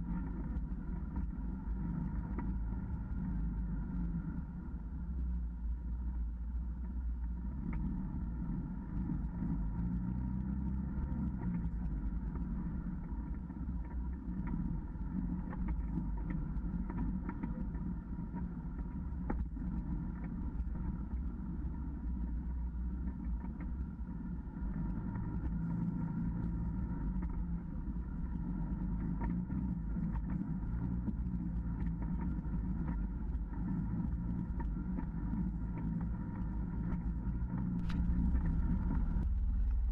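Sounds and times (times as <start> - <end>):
utility vehicle engine running: 0.0 - 39.9
high whine: 23.2 - 39.9.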